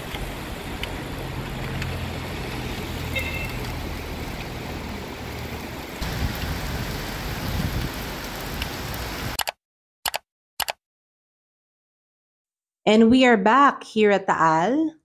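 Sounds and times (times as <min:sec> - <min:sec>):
rain falling on wet ground: 0:00.0 - 0:09.4.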